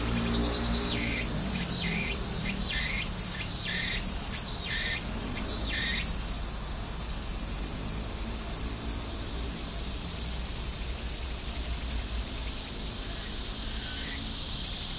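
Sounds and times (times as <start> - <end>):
bird chirps: 0.0 - 6.2
insects hissing: 0.0 - 14.9.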